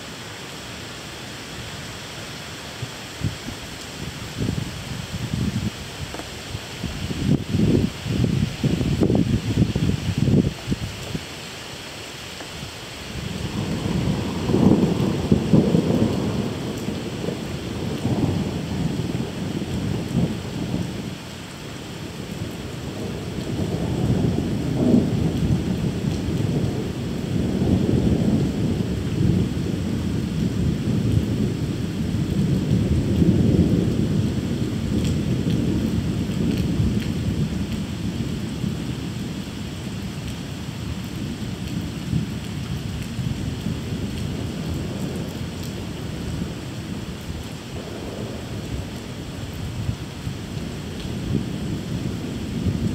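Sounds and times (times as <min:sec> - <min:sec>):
steady rain: 0:00.0 - 0:52.9
thunder rumbling: 0:13.2 - 0:21.2, 0:22.0 - 0:40.0, 0:40.7 - 0:52.9.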